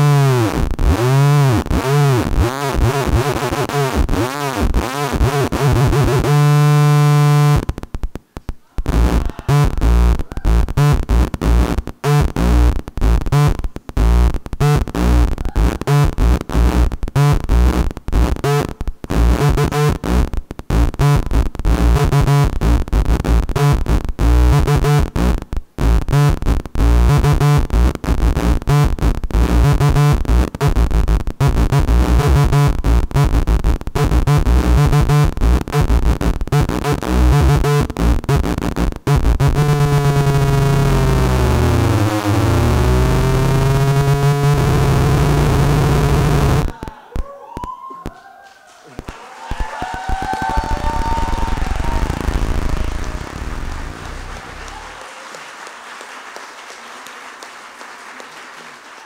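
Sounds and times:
harsh electronic tones: 0:08.8 - 0:46.8.

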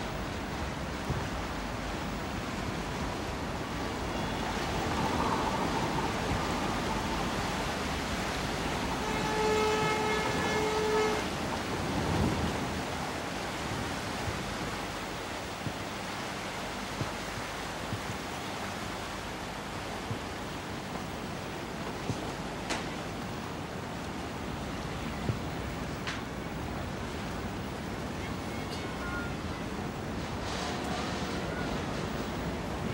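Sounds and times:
wind and sea noise: 0:00.0 - 0:32.9
ship horn tone: 0:03.8 - 0:14.7, 0:28.4 - 0:32.9.

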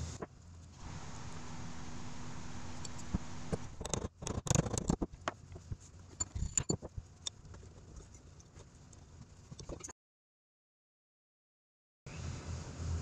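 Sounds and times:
steel parts clinking and knocking: 0:06.1 - 0:06.9.

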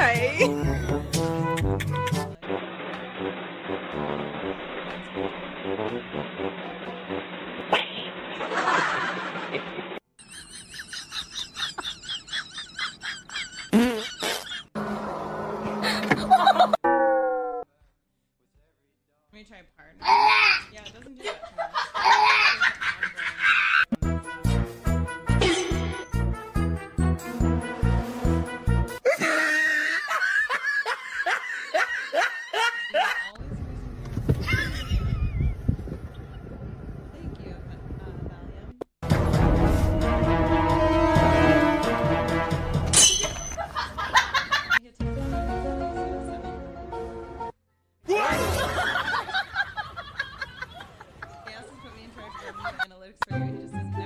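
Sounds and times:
person laughing in short bursts: 0:11.6 - 0:14.7, 0:25.4 - 0:26.0.

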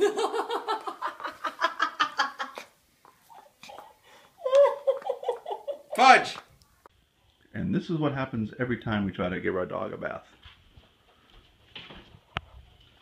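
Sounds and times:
person laughing: 0:00.0 - 0:02.7, 0:03.4 - 0:06.2.

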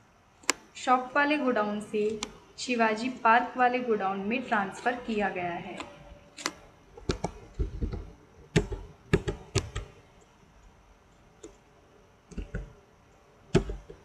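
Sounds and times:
keyboard keystrokes: 0:05.7 - 0:10.0, 0:13.5 - 0:14.0.

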